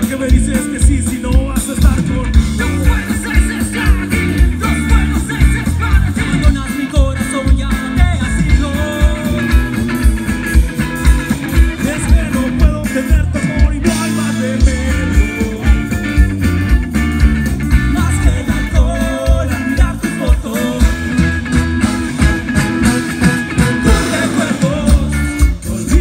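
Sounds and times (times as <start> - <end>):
live band playing: 0.0 - 26.0
person singing lead: 17.9 - 21.2, 23.6 - 26.0.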